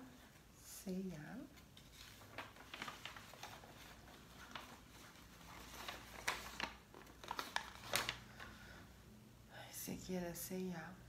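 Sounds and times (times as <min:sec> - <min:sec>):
paper rustling and crinkling: 0:01.4 - 0:08.7.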